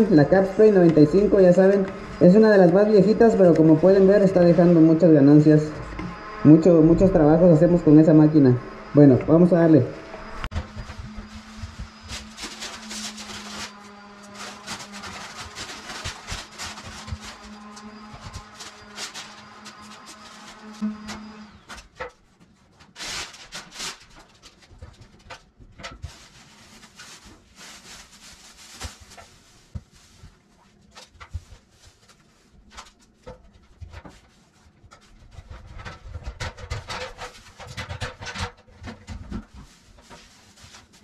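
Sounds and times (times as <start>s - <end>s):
rustling and scraping: 10.4s - 41.0s.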